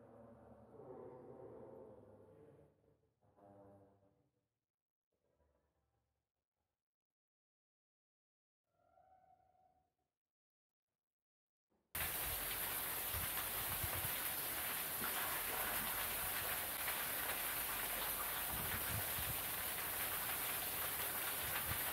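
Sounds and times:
steady outdoor hiss: 12.0s - 21.9s.

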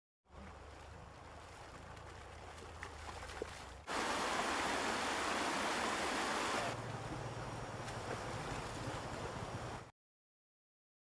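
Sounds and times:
river water splashing and churning: 0.3s - 9.9s.

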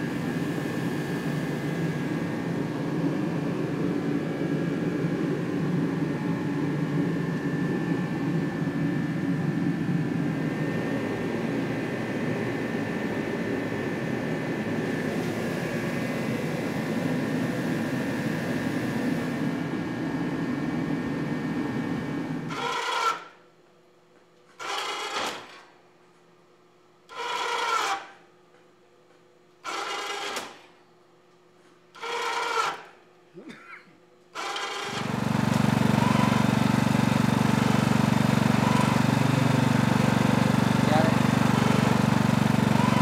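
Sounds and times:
steady mechanical running noise: 0.0s - 43.0s
electric winch running: 21.5s - 23.4s, 24.6s - 25.6s, 27.1s - 28.2s, 29.6s - 30.7s, 32.0s - 33.0s, 34.3s - 43.0s.

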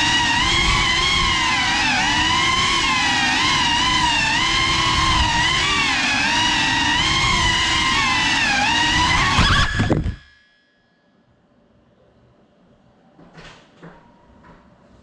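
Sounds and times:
drone motors whining: 0.0s - 10.3s.

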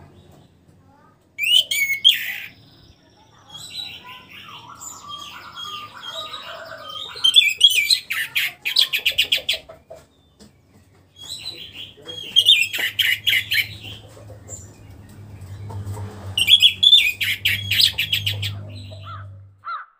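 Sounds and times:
thrush singing: 11.9s - 19.6s.

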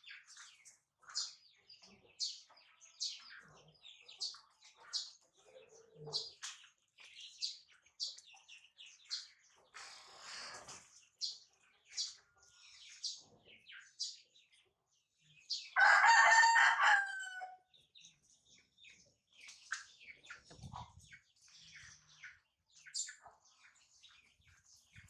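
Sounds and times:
rooster crowing: 15.8s - 17.6s.

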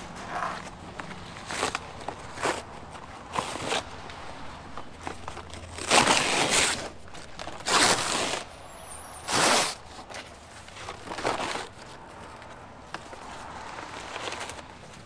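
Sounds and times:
cardboard wrap tearing and crumpling: 5.4s - 8.5s, 9.2s - 10.0s.

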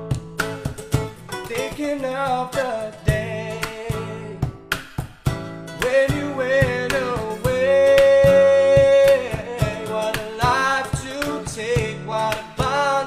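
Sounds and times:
strummed acoustic guitar: 0.0s - 13.0s
person singing long notes: 5.8s - 13.0s.

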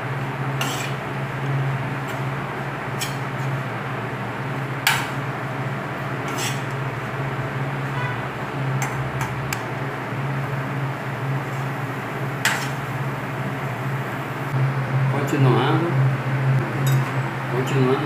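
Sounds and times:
low hum and hiss: 0.0s - 18.0s
metal spoon scraping frying pan: 0.6s - 1.0s, 6.2s - 6.8s, 12.4s - 12.9s.

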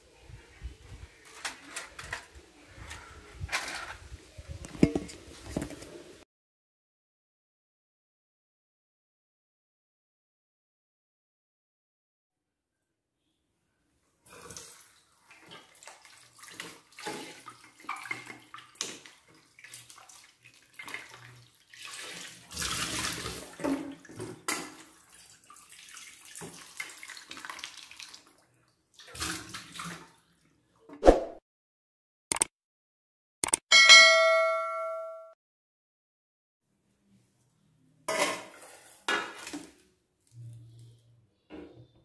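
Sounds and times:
tap water splashing into steel bowl: 14.5s - 28.4s.

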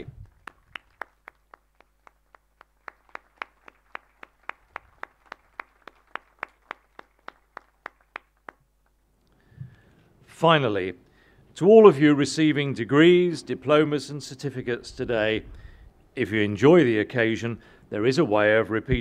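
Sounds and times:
hand clapping: 0.0s - 9.0s.

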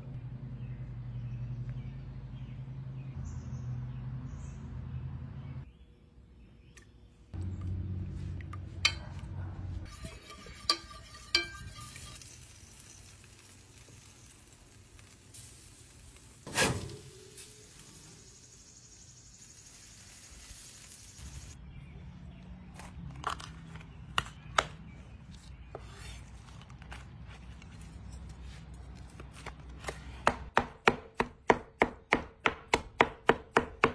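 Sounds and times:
utensils and pans clinking: 9.8s - 13.2s
steady hiss: 12.2s - 21.6s.

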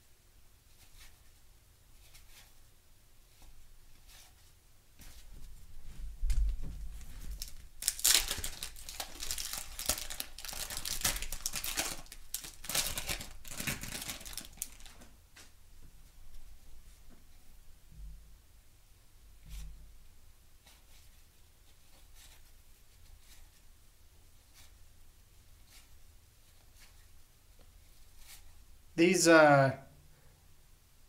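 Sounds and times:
wax paper tearing and crinkling: 7.3s - 15.0s.

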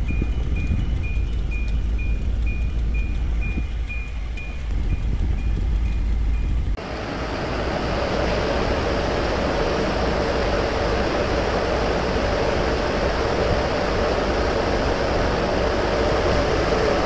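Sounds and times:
truck engine idling: 0.0s - 6.8s
evaporator fans humming: 0.0s - 17.0s.

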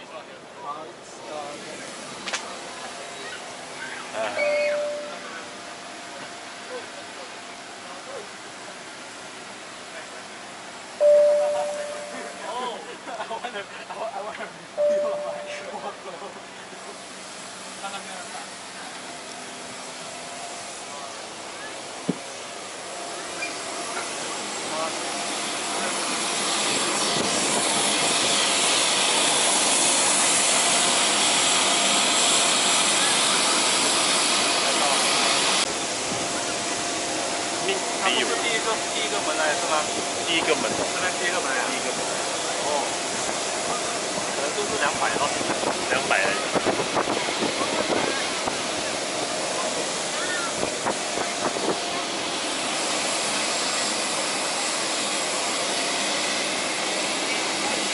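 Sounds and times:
jet turbine rushing hiss: 14.8s - 57.9s.

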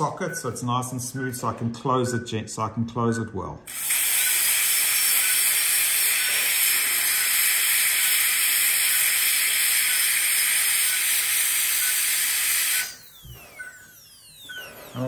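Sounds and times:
dental drill high hiss: 3.7s - 14.4s.

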